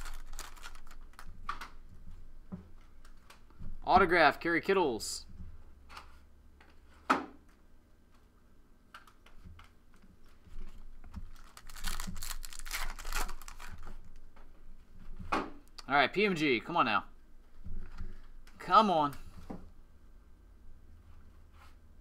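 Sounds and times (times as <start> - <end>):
cards rustling and crinkling: 0.0 - 1.8, 8.9 - 14.2.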